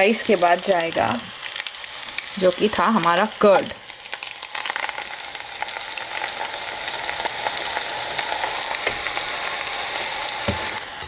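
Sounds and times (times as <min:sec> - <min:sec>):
food sizzling in a pan: 0:00.0 - 0:11.0
yogurt being poured: 0:03.6 - 0:11.0.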